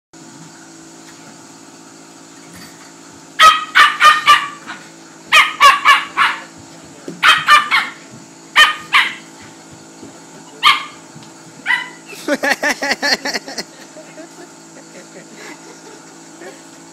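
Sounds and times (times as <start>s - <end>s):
steady low hum: 0.2s - 16.9s
small dog yapping: 3.4s - 6.5s, 7.2s - 8.0s, 8.6s - 9.3s, 10.6s - 11.0s, 11.6s - 12.1s.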